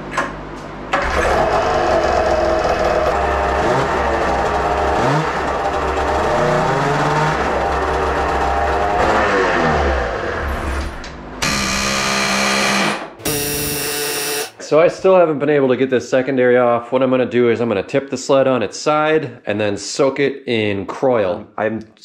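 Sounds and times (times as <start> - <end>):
steady buzzing: 1.0 - 10.5, 11.4 - 14.6
snowmobile engine revving: 1.0 - 10.6.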